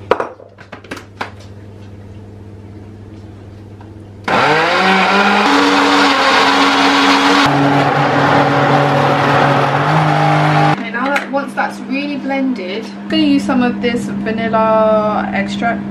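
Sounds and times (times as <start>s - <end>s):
blender whining: 4.3s - 10.8s.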